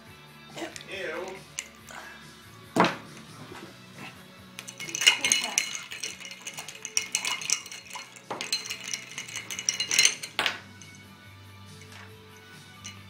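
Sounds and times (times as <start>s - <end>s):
ice cubes clinking in glass: 0.7s - 2.1s, 4.6s - 11.1s, 11.7s - 13.0s.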